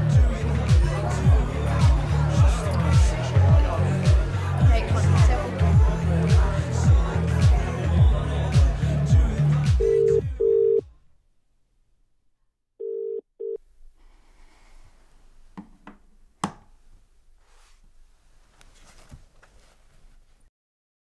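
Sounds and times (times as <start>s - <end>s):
phone ringing tone on speaker: 9.8s - 10.9s, 12.8s - 13.6s.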